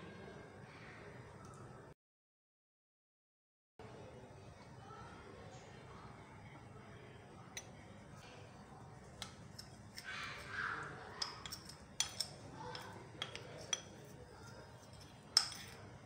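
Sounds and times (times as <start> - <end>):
spoon clinking against ceramic bowl: 9.0 - 15.8
metal spoon scraping a tin: 9.1 - 15.9.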